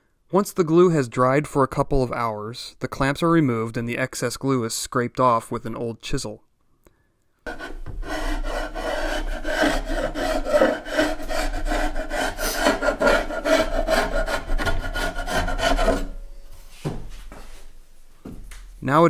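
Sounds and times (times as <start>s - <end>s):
chisel scraping glue off wood: 7.5s - 16.2s.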